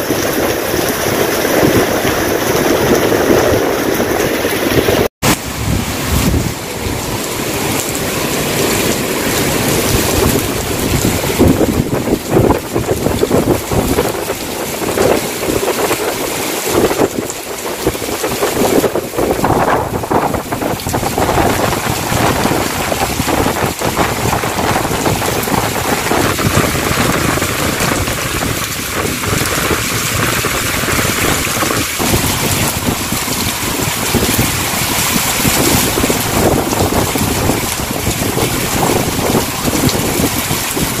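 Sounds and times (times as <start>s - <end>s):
heavy rain on pavement: 0.0s - 41.0s
wind buffeting microphone: 0.0s - 41.0s.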